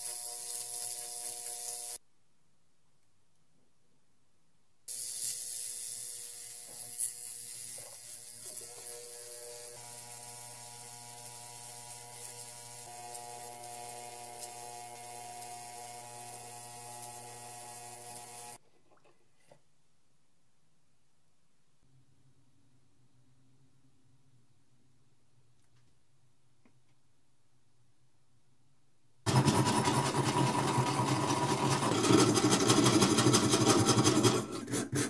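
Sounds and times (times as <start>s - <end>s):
ultrasonic cleaner buzzing: 0.0s - 2.0s, 4.9s - 18.6s, 29.3s - 31.9s.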